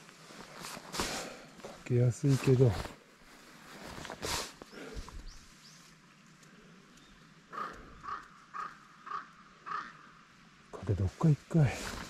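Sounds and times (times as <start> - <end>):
crow cawing: 7.5 - 10.2.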